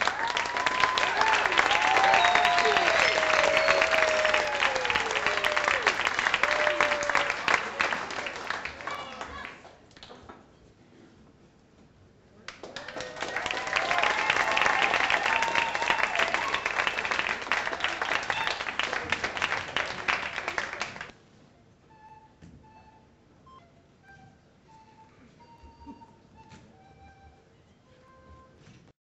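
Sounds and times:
audience applauding and cheering: 0:00.0 - 0:09.6, 0:12.5 - 0:21.1.

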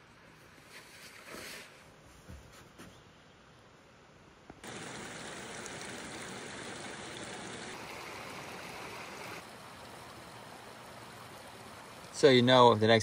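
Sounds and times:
creek trickling over rocks: 0:04.6 - 0:13.0.

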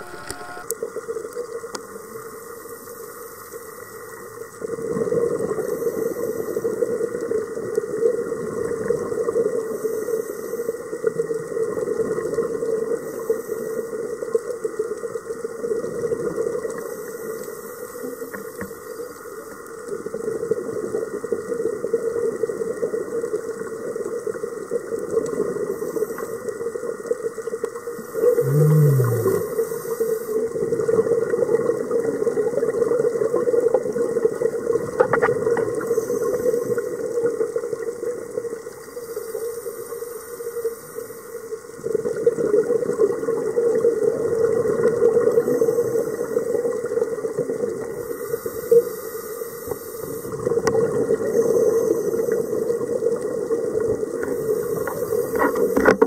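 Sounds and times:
short low tone dropping in pitch: 0:00.0 - 0:00.7
steady hum: 0:00.0 - 0:00.7
rush of exhaled bubbles: 0:04.6 - 0:09.6, 0:28.2 - 0:37.9, 0:41.8 - 0:48.9, 0:49.6 - 0:56.0
diver breathing through regulator: 0:28.2 - 0:30.4.

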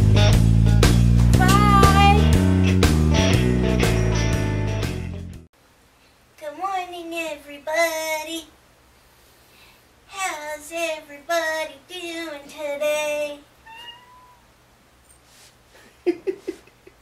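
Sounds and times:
woman singing meow-like notes: 0:01.4 - 0:02.2.

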